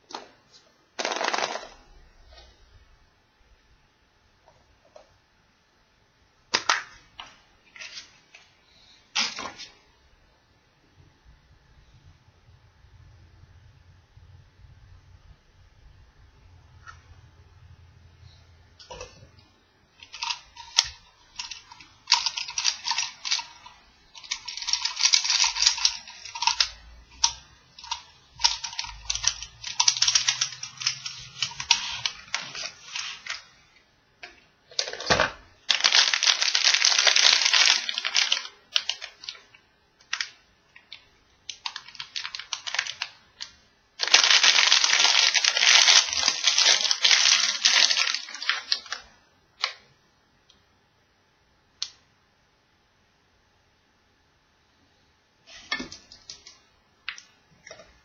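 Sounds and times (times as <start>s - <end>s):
plastic wrappers crinkling and tearing: 20.0s - 33.6s, 34.7s - 49.7s.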